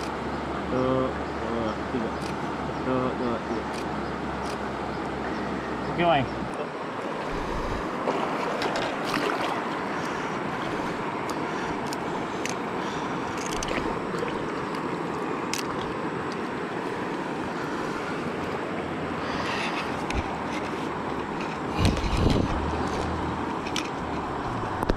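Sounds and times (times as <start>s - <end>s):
river water running over rocks: 0.0s - 24.9s
small splashes in water: 8.0s - 10.2s.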